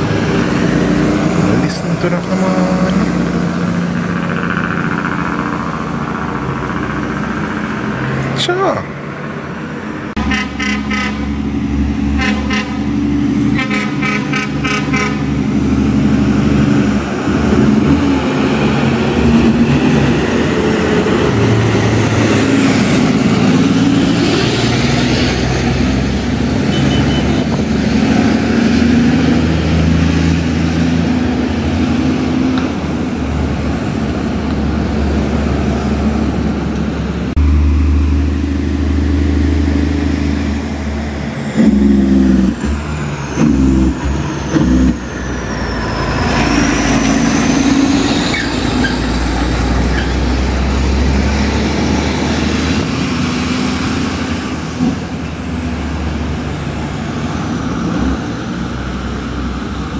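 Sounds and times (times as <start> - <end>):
truck diesel engine running: 0.0 - 26.7, 27.6 - 59.7
truck horn: 10.2 - 15.5, 26.6 - 27.6, 41.6 - 42.5.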